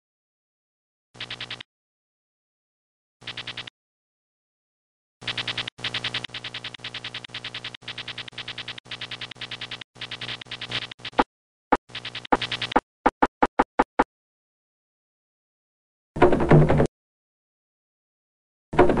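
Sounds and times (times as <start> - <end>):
short electronic blips: 11.9 - 14.0.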